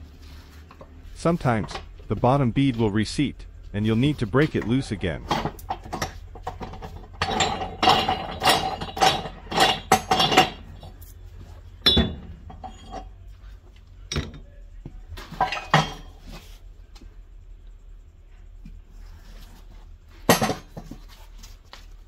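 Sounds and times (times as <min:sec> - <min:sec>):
steel bar clanking on metal rim: 0:05.2 - 0:10.8.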